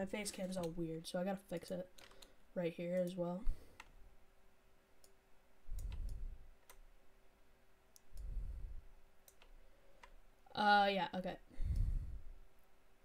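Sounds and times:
faint steady hum: 0:00.0 - 0:13.0
computer mouse clicking: 0:00.3 - 0:00.8, 0:01.9 - 0:03.1, 0:05.0 - 0:06.9, 0:07.9 - 0:08.4, 0:09.2 - 0:10.2
low rumbles: 0:05.7 - 0:06.5.

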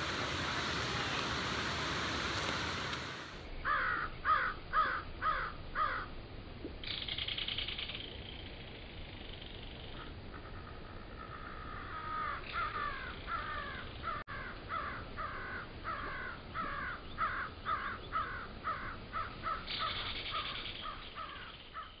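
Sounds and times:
crows cawing: 0:03.6 - 0:06.1, 0:11.2 - 0:22.0.

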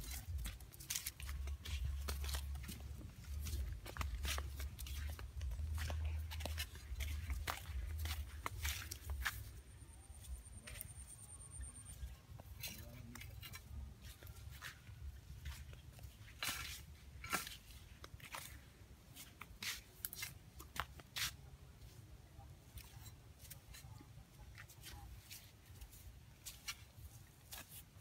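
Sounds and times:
dry leaves and twigs crunching: 0:00.0 - 0:10.9.

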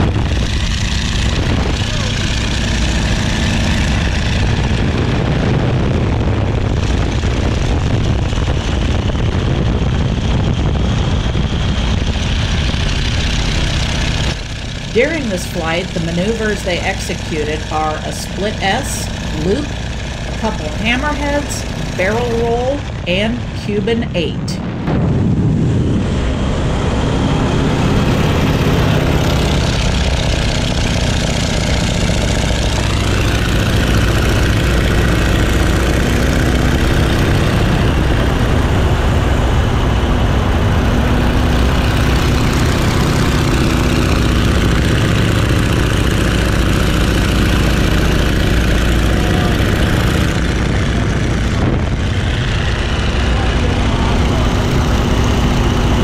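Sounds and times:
heavy wind rush: 0:00.0 - 0:56.0
propeller plane engine in flight: 0:00.0 - 0:56.0.

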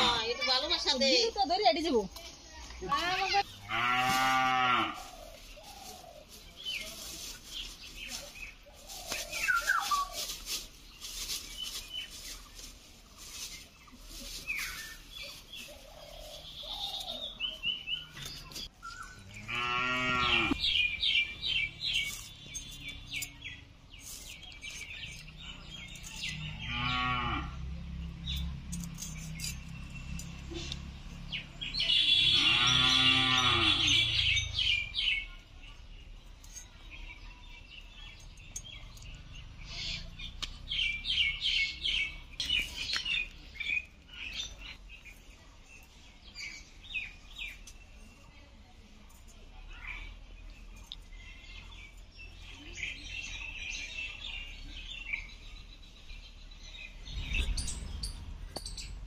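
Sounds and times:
cow mooing: 0:03.7 - 0:05.0, 0:19.3 - 0:20.6, 0:26.6 - 0:27.6, 0:32.3 - 0:34.1
bird chirps: 0:05.1 - 0:10.5, 0:13.5 - 0:27.1, 0:49.7 - 0:59.0
sharp clicks and knocks: 0:57.4 - 0:59.0.

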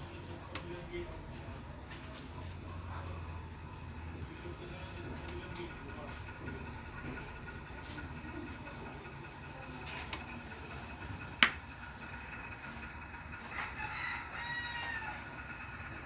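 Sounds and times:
low steady rumble: 0:00.0 - 0:16.0
rooster crowing: 0:13.4 - 0:15.8.

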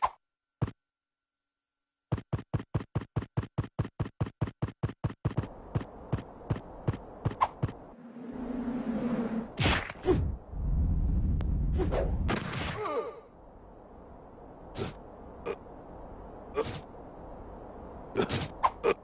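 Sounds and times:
low hum: 0:05.4 - 0:12.3.

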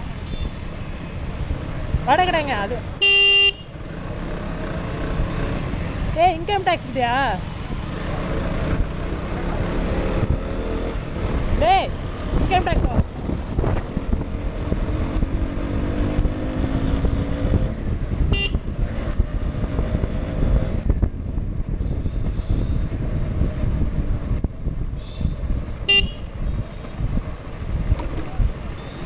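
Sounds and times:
wind rushing over microphone: 0:00.0 - 0:03.0, 0:05.7 - 0:29.0
horn toots: 0:03.0 - 0:03.8, 0:18.3 - 0:18.6, 0:25.0 - 0:26.3
motorcycle engine running: 0:06.2 - 0:29.0.

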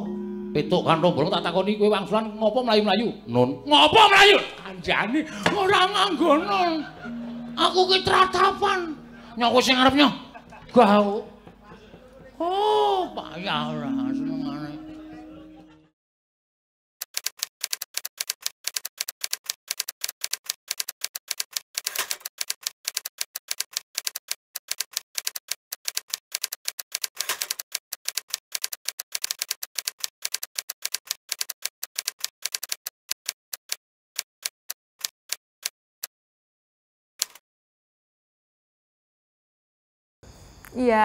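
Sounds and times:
typewriter keystrokes: 0:17.0 - 0:35.4.

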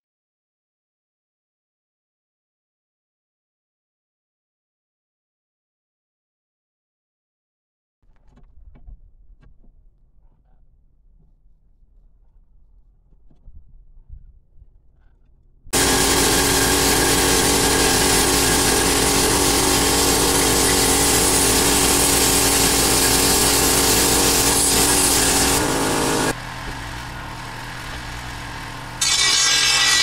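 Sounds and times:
angle grinder cutting steel: 0:15.8 - 0:26.4, 0:27.5 - 0:30.0
bench grinder humming: 0:15.8 - 0:30.0.

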